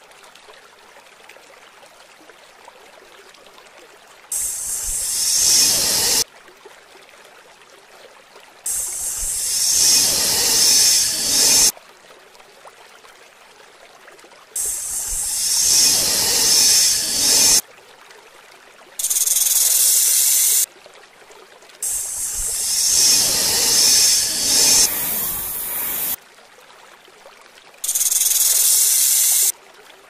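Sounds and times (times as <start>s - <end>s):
snake hissing: 4.3s - 6.2s, 8.7s - 11.7s, 14.6s - 17.6s, 19.0s - 20.6s, 21.8s - 26.2s, 27.8s - 29.5s.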